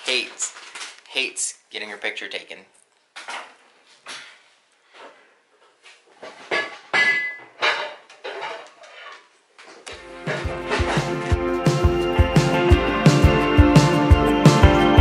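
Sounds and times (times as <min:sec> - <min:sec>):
objects clinking and clattering: 0:06.2 - 0:09.3.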